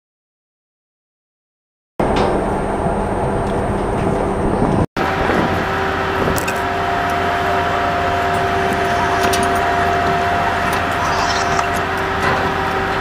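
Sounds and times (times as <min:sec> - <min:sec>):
mechanical drone with tones: 0:05.0 - 0:13.0.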